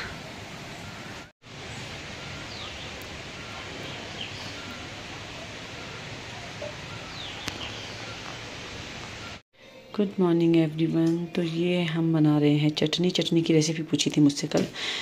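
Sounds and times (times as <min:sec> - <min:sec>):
bird chirps: 0:05.8 - 0:08.4.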